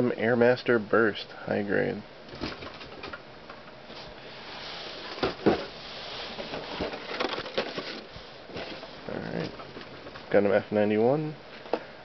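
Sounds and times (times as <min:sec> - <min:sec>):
cardboard boxes rustling and knocking: 0:05.0 - 0:10.3.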